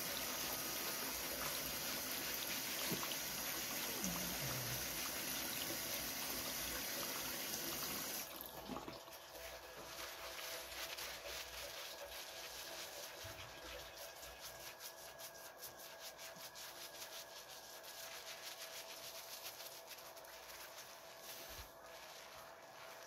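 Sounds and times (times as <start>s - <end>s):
hands scrubbing lather in beard: 9.3s - 23.0s.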